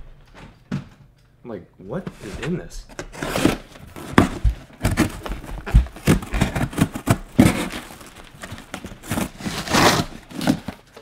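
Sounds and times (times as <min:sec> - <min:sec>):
taped cardboard ripping: 0:03.1 - 0:10.8
thumps and knocks on box: 0:03.9 - 0:09.3.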